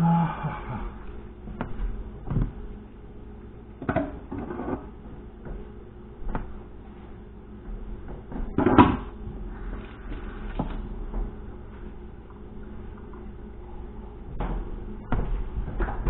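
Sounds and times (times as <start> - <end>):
steady low hum: 0.0 - 16.0
kitchen knocks and clatters: 3.8 - 4.9, 8.0 - 9.1, 14.4 - 16.0.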